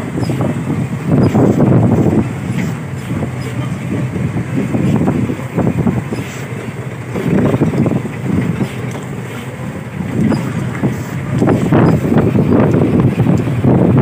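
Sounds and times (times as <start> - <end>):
dump truck rumbling: 0.0 - 14.0
wind buffeting microphone: 0.0 - 14.0.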